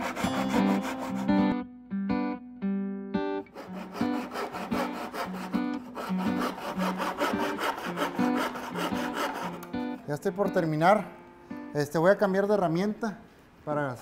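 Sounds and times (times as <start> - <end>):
handsaw cutting wood: 0.0 - 1.5, 3.5 - 10.0.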